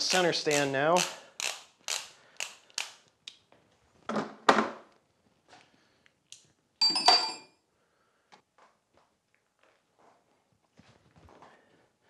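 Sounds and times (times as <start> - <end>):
metal tools knocking and clattering: 6.8 - 7.5.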